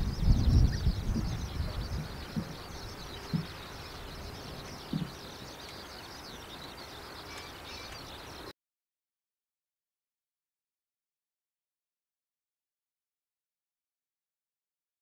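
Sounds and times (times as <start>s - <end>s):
low thumps: 0.0s - 5.4s
wind on microphone: 0.0s - 6.2s
small birds chirping: 0.0s - 8.5s.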